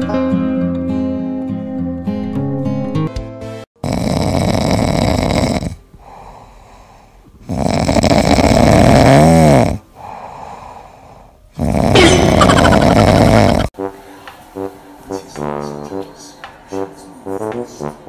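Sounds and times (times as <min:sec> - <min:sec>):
cat snoring: 0:03.8 - 0:06.4, 0:07.4 - 0:10.8, 0:11.5 - 0:13.7
quiet cat breathing: 0:06.0 - 0:07.4.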